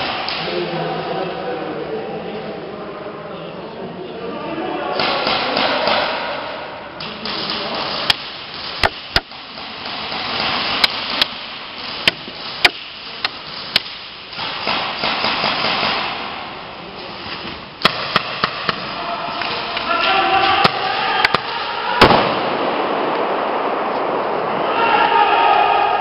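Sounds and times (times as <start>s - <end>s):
airsoft gun shots: 13.7s - 16.4s, 17.8s - 18.9s, 20.6s - 24.2s.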